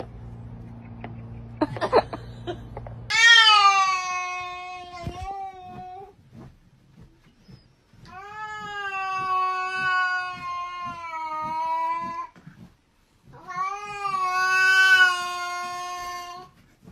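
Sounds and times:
cat yowling: 3.1s - 6.1s, 13.4s - 16.5s.

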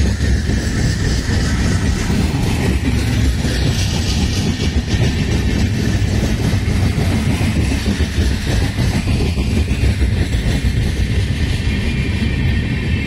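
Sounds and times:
train wheel and rail noise: 0.0s - 13.0s.

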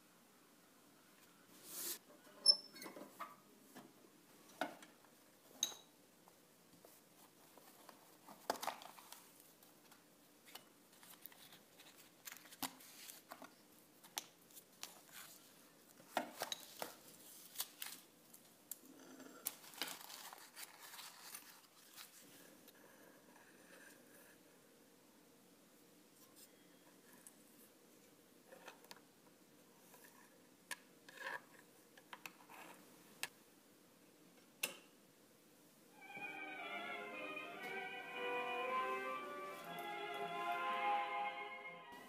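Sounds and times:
paper rustling: 6.8s - 13.5s, 16.3s - 18.1s, 19.5s - 22.4s.

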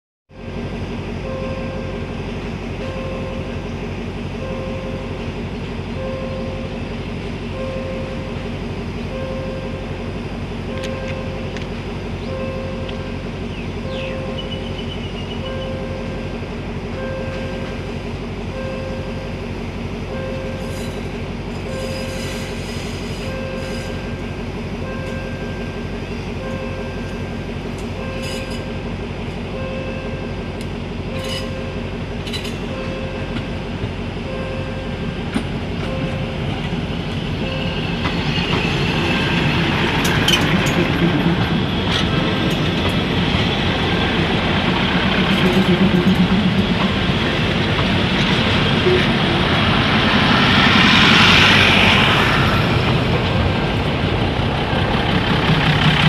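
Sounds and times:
train passing on rails: 0.3s - 56.0s
level crossing warning bell: 1.2s - 2.1s, 2.8s - 3.6s, 4.4s - 5.3s, 6.0s - 6.8s, 7.5s - 8.5s, 9.1s - 10.0s, 10.7s - 11.6s, 12.2s - 14.7s, 15.4s - 17.9s, 18.5s - 19.5s, 20.1s - 20.7s, 23.2s - 24.2s, 24.8s - 28.9s, 29.5s - 30.5s, 31.1s - 36.7s.

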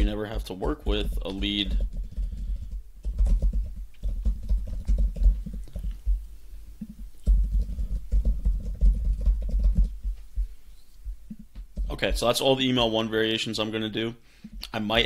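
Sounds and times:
rapid typing on keyboard: 0.7s - 6.2s, 6.8s - 10.1s.

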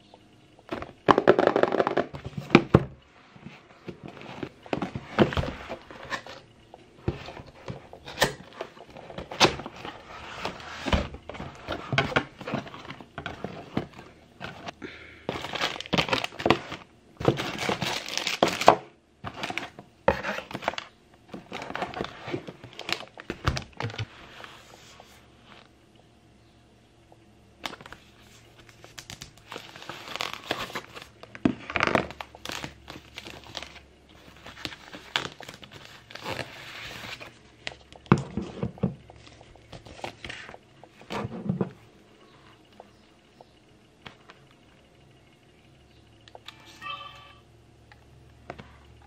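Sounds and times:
plastic packaging crinkling: 3.8s - 24.1s, 28.6s - 38.1s.

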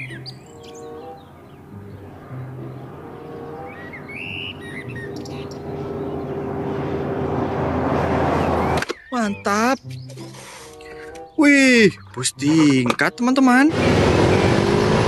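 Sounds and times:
bird chirps: 0.0s - 6.6s, 8.3s - 13.2s
truck engine and tyres: 0.0s - 15.0s.

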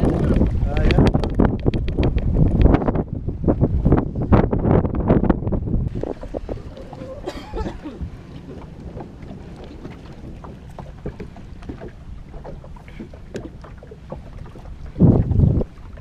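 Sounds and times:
small waves slapping a boat hull: 0.0s - 4.4s, 5.9s - 16.0s
gust rumble: 0.0s - 11.3s, 14.7s - 16.0s
wind on the microphone: 0.0s - 16.0s.

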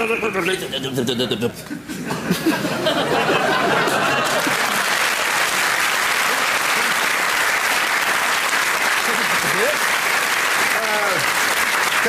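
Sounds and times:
crowd applauding: 3.1s - 12.0s.

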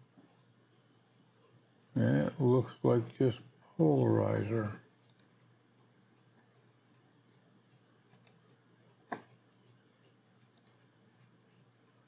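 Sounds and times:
computer mouse button clicks: 10.6s - 10.8s.

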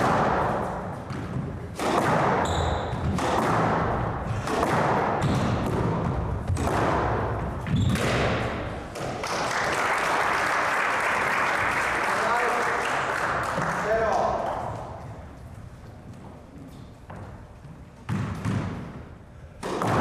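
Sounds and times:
squash ball hitting rackets and walls: 0.0s - 9.5s, 13.2s - 20.0s
shoe squeaks on wooden floor: 2.4s - 3.1s, 7.6s - 8.0s
audience applauding: 9.2s - 14.2s.

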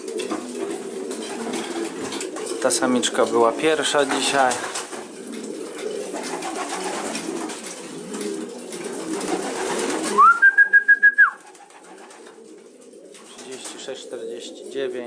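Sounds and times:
pigeons cooing: 0.0s - 15.0s
high pulsing whistle-like tone: 10.2s - 11.4s.

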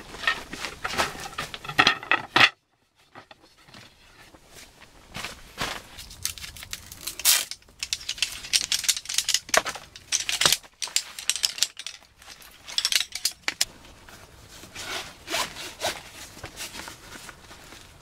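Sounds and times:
metal chair poles clattering and clicking: 0.0s - 3.4s, 7.0s - 13.7s.

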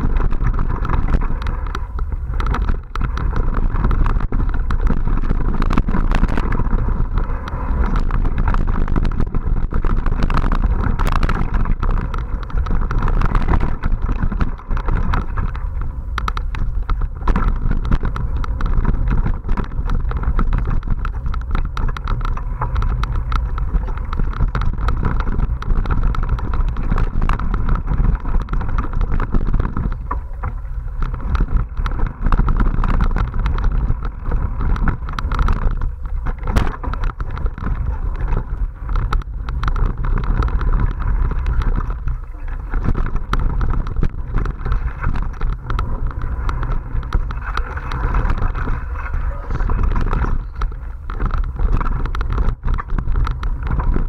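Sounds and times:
bike rattling and knocking: 0.0s - 54.0s
wind and ground rumble on microphone: 0.0s - 54.0s.

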